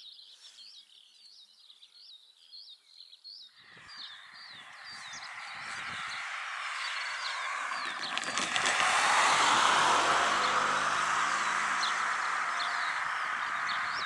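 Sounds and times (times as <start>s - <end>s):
birds singing: 0.0s - 14.0s
car passing by: 3.6s - 14.0s.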